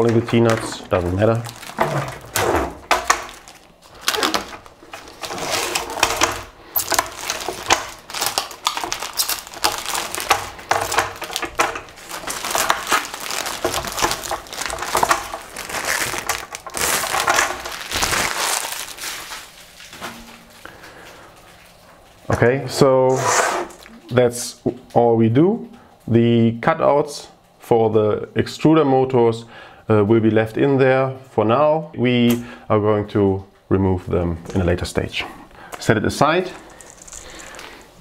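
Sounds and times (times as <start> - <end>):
plastic film peeling: 0.0 - 22.2, 36.5 - 38.0
plastic film crumpled by hand: 0.0 - 22.3, 36.5 - 38.0.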